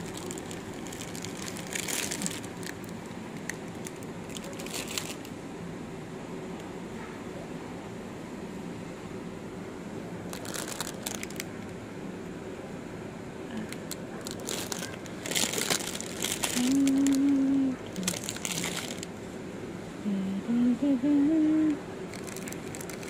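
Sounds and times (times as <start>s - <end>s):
plastic packaging crinkling: 0.0s - 5.4s, 10.3s - 11.7s, 13.7s - 19.1s, 22.1s - 23.0s
person humming: 16.5s - 18.3s, 20.0s - 21.8s.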